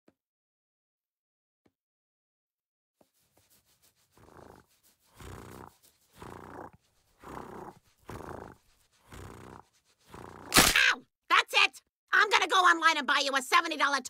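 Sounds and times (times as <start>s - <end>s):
cartoon dog purring: 4.0s - 10.6s.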